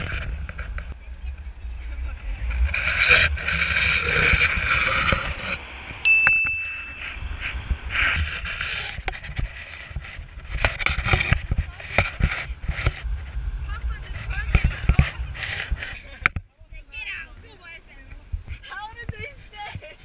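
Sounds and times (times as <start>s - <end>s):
wind buffeting a microphone: 0.0s - 20.0s
short high ding: 6.0s - 7.3s.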